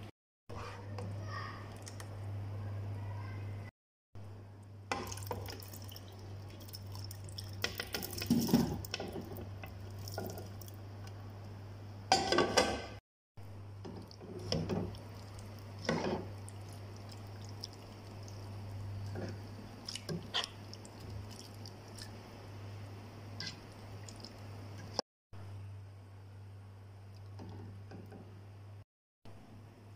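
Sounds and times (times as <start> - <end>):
wet squelching of food stirred: 5.0 - 10.8, 13.8 - 22.5, 23.4 - 25.0.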